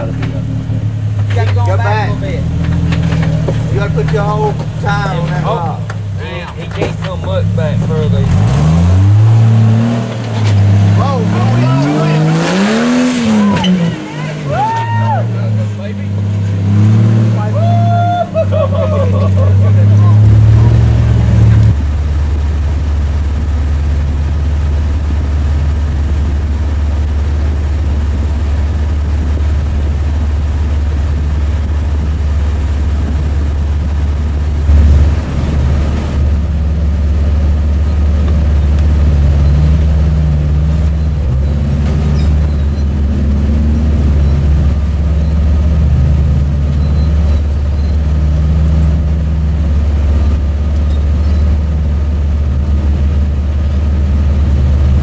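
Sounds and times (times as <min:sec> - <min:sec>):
off-road engines at low revs: 0:00.0 - 0:55.0
loud bump: 0:02.4 - 0:15.2, 0:33.0 - 0:36.8.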